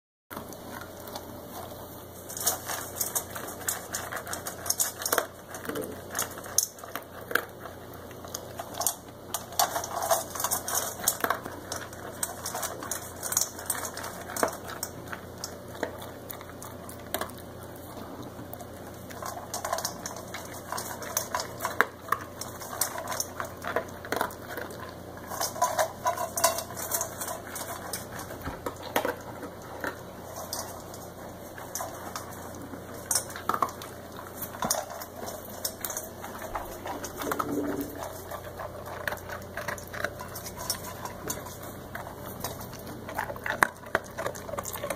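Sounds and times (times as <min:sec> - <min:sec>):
dog food clinking on metal bowl: 0:08.5 - 0:16.0, 0:19.1 - 0:44.9.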